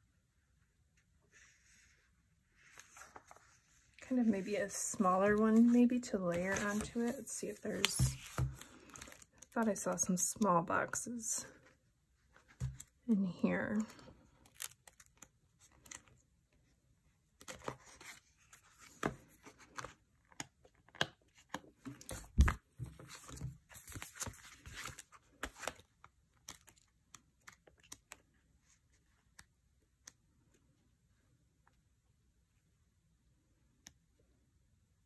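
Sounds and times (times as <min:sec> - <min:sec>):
paper sticker sheets rustling: 0:02.6 - 0:09.8.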